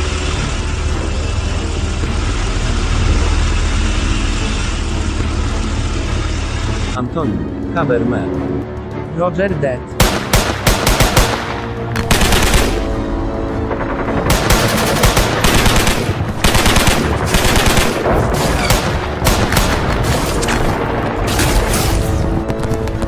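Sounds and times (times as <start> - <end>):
background music: 0.0 - 23.0
automatic gunfire: 10.0 - 12.9, 14.2 - 20.0.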